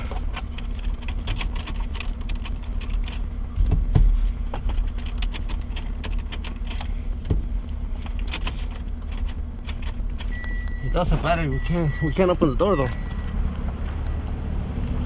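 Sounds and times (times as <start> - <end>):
steady low hum: 0.0 - 15.0
car key jangling in ignition: 0.2 - 3.3, 4.7 - 6.9, 8.0 - 14.2.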